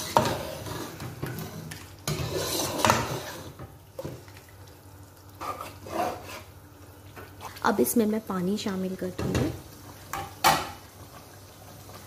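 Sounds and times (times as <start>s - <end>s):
spoon stirring and scraping pot: 0.0s - 4.5s, 5.4s - 6.6s.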